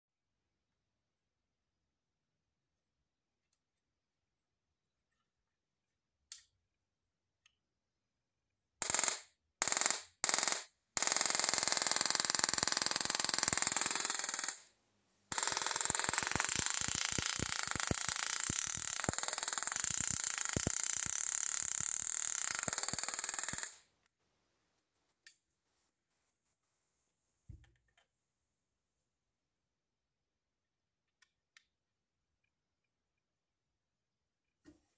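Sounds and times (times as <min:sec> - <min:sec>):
tesla coil spark crackling: 0:15.4 - 0:23.8.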